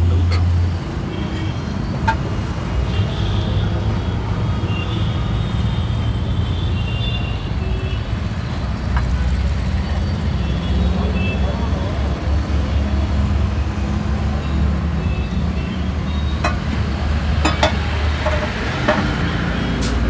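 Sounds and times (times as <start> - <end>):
low rumble of passing vehicles: 8.1 - 20.0.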